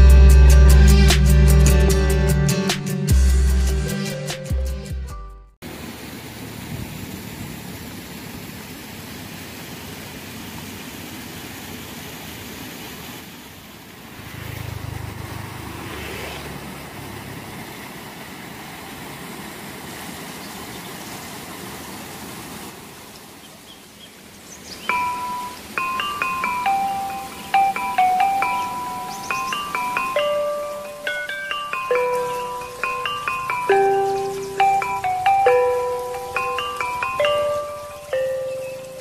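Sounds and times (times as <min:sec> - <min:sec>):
outdoor rushing noise: 0:13.9 - 0:18.4
vehicle passing: 0:14.0 - 0:19.2
glockenspiel-like chime notes: 0:24.9 - 0:39.0.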